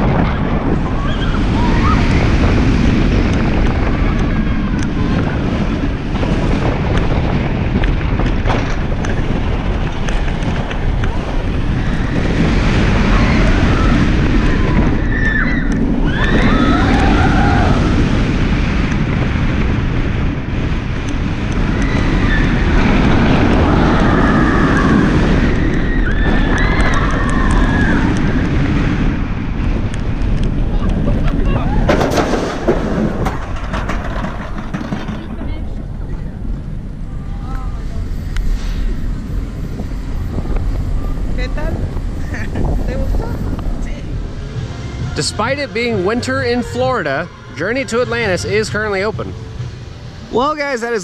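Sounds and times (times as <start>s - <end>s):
roller coaster rumble: 0.0s - 51.0s
wind rushing over microphone: 0.0s - 51.0s
people screaming voices: 0.7s - 2.4s, 11.7s - 18.1s, 23.4s - 28.4s, 31.3s - 32.0s.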